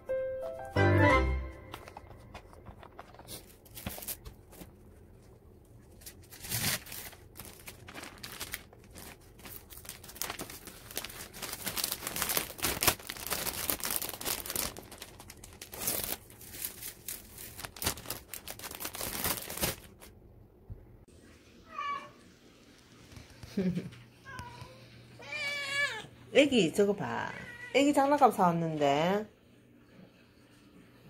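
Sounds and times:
plastic bags crinkling: 2.5s - 4.8s, 5.8s - 20.2s.

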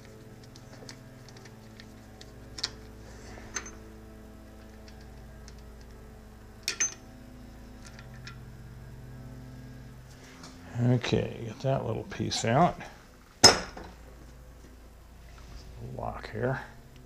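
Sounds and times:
steady low hum: 0.0s - 17.0s
screwdriver clinking on metal: 6.6s - 7.0s.

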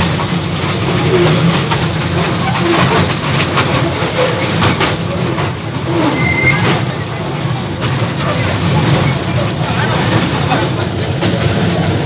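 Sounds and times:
small train engine rumble: 0.0s - 12.0s.

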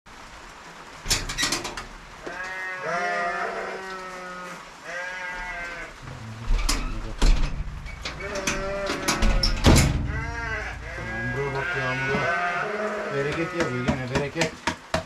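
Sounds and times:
livestock bleating: 2.2s - 6.1s, 8.0s - 14.1s
sharp knocks: 6.5s - 12.3s, 13.2s - 15.0s.

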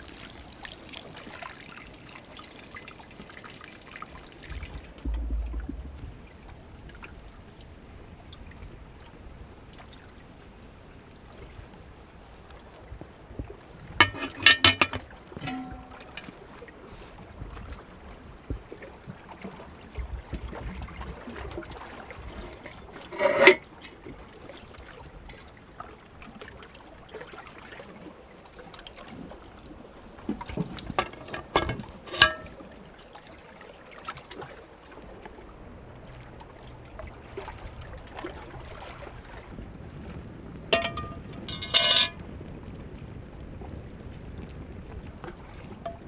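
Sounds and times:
water lapping against rocks: 13.2s - 35.6s
metallic knocks of pot lid: 14.0s - 16.3s, 40.8s - 42.2s.

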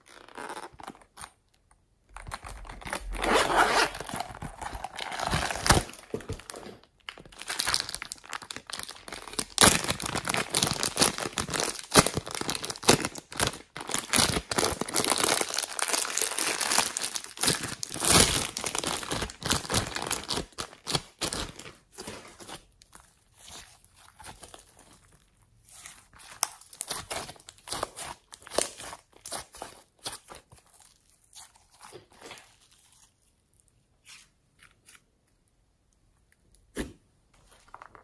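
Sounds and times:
plastic bag crinkling: 2.2s - 22.9s, 37.4s - 38.0s.

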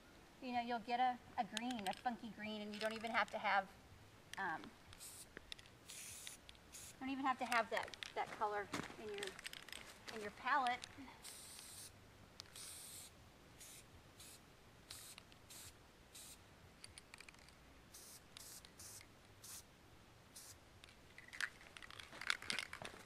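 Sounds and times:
aerosol spray can hissing: 5.0s - 7.0s, 11.2s - 11.9s, 12.5s - 16.4s, 17.9s - 19.7s, 20.4s - 20.6s
footsteps: 7.3s - 11.1s, 21.4s - 23.0s.

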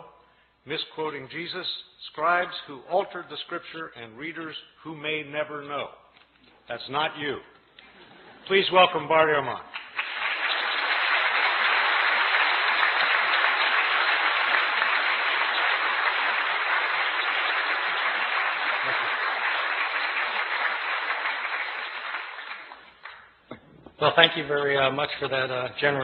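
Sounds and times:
audience applauding: 9.7s - 23.4s.

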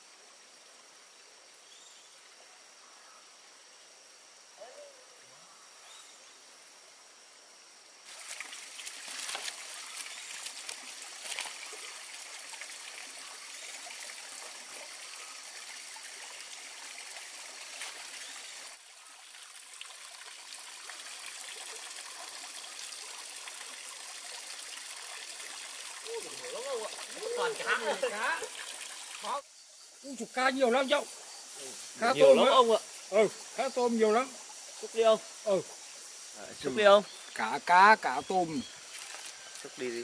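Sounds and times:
faint insect tones: 0.0s - 40.0s
small splashes: 8.0s - 29.4s, 38.8s - 39.7s
water trickling and dripping: 8.0s - 40.0s.

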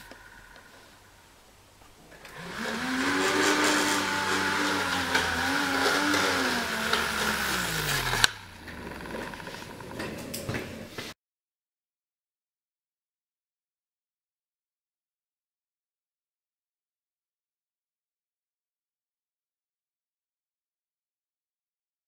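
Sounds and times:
fan motor whirring: 2.2s - 10.5s.

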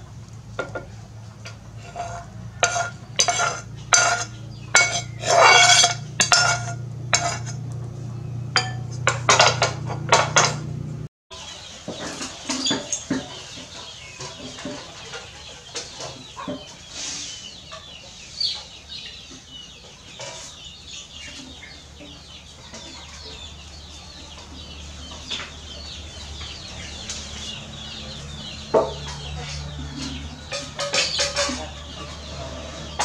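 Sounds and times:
chickens clucking: 0.0s - 33.0s
metal clank on tray: 0.6s - 7.6s, 8.6s - 10.6s, 30.0s - 32.1s.

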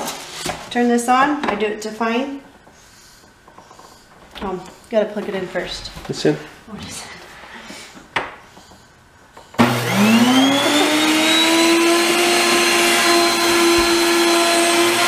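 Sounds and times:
grain mill motor whining: 9.6s - 15.0s.

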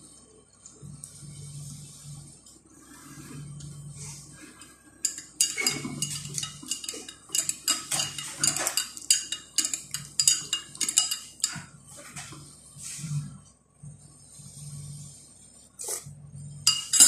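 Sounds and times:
spoon clinking against mug: 5.1s - 11.6s, 16.7s - 17.0s.

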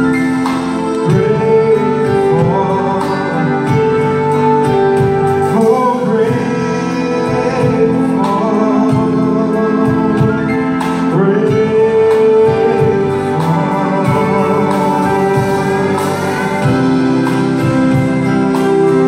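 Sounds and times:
country band playing: 0.0s - 19.0s
drums: 0.0s - 19.0s.

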